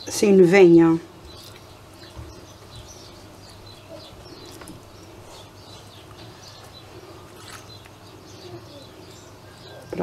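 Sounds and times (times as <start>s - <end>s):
low steady hum: 0.0s - 10.0s
small birds chirping: 0.0s - 10.0s.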